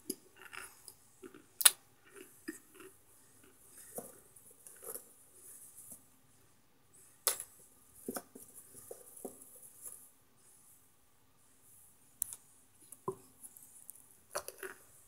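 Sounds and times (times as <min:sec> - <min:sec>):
cornstarch chunks clicking and crumbling: 0:12.2 - 0:14.9.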